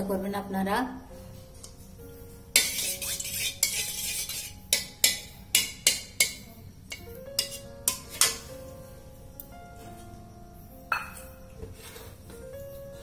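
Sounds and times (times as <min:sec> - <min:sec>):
soft background music: 0:00.0 - 0:13.0
metal spatula scraping metal pan: 0:02.5 - 0:06.4, 0:07.4 - 0:08.5.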